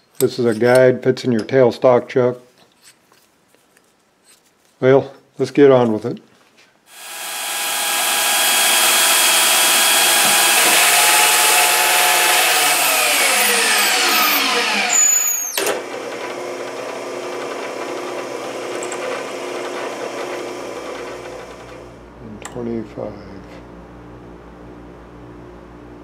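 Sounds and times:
band saw cutting metal bar: 6.9s - 21.8s
quieter machine running: 6.9s - 26.0s.

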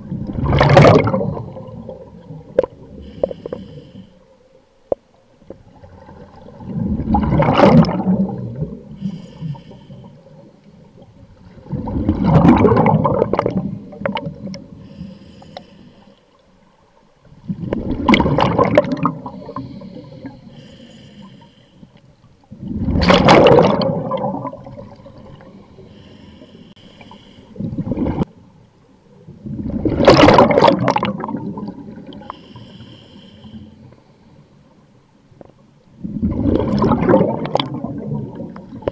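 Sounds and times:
exhaled bubbles underwater: 0.0s - 4.0s, 5.4s - 15.0s, 17.2s - 20.5s, 22.4s - 25.9s, 27.6s - 28.3s, 29.2s - 32.3s, 36.0s - 38.9s.

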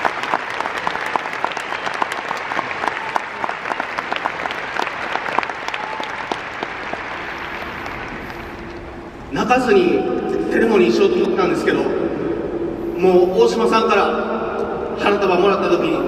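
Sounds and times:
crowd applauding: 0.0s - 9.2s.

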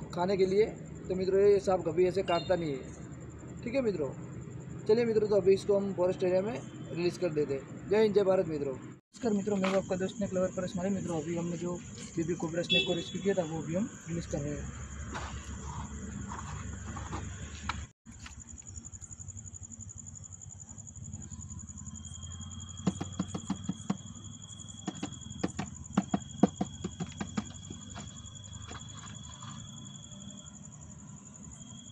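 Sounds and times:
lower insect trill: 0.0s - 17.5s, 18.1s - 31.9s
crickets trilling: 0.0s - 31.9s
plastic jar tapping and knocking: 22.8s - 24.1s, 24.8s - 28.1s.

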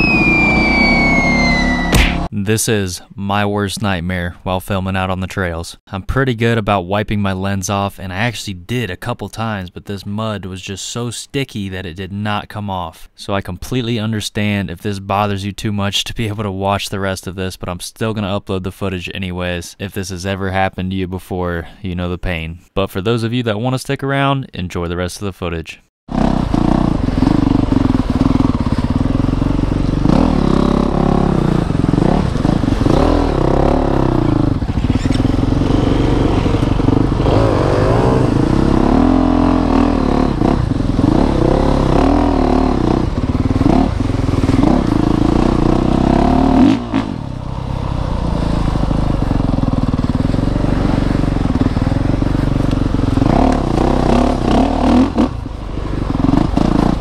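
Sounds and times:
motorcycle engine revving: 0.0s - 2.3s, 26.1s - 57.0s.

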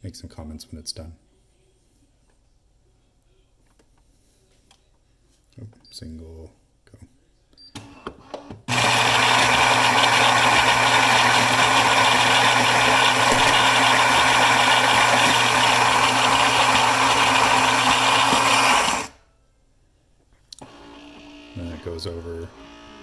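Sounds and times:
coffee grinder motor whirring: 8.7s - 19.2s.

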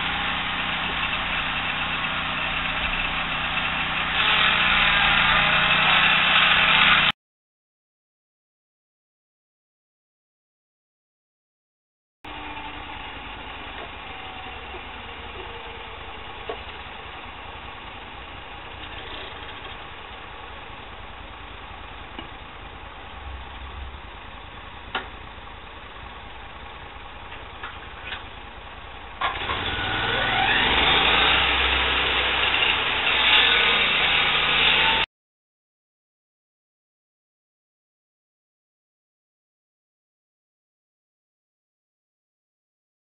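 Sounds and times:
sawmill petrol engine revving: 0.0s - 7.1s, 12.3s - 35.1s.

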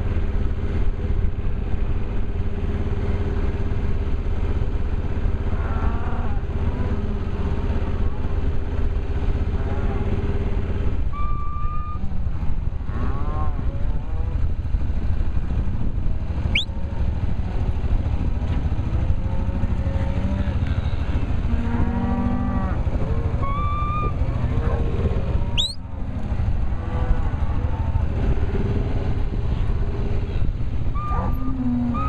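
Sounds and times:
low engine rumble: 0.0s - 32.0s
cows mooing and bawling: 5.1s - 32.0s
sharp rising whistles: 16.5s - 16.7s, 25.5s - 25.8s.

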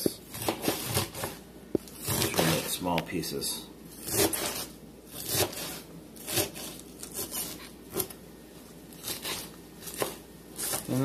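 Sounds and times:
knife chopping lettuce on board: 0.0s - 1.4s, 4.0s - 8.1s, 9.0s - 11.0s.

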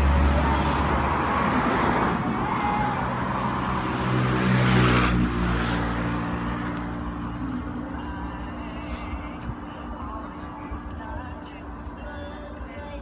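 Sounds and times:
rush of road noise: 0.0s - 13.0s
vehicle engine running: 5.2s - 13.0s.

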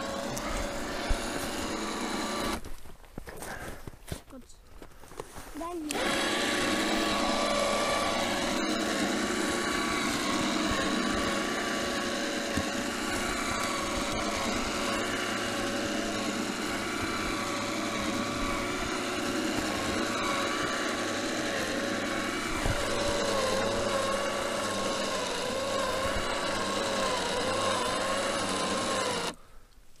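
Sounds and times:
winch motor whining: 0.0s - 2.6s, 5.9s - 29.4s.

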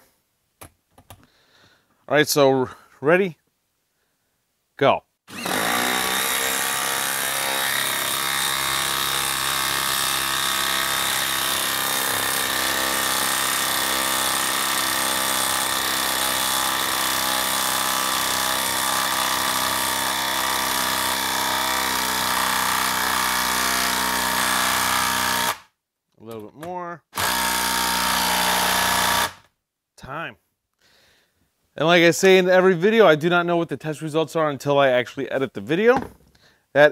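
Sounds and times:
impact driver hammering: 5.3s - 25.6s, 27.2s - 29.4s.

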